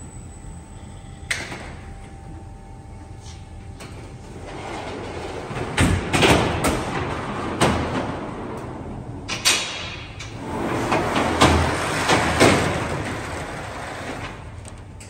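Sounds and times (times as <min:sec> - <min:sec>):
oven loader rolling on rails: 0:03.9 - 0:15.0.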